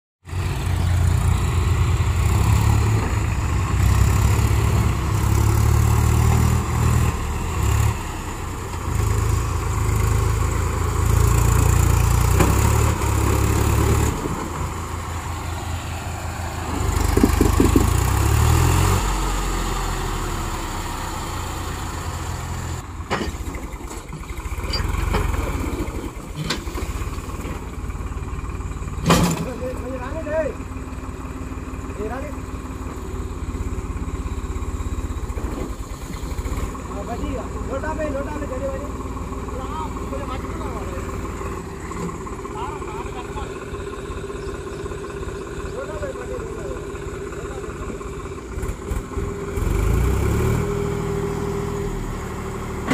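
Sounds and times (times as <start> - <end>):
tractor engine revving: 0.2 - 52.9
sharp knocks: 17.0 - 18.2.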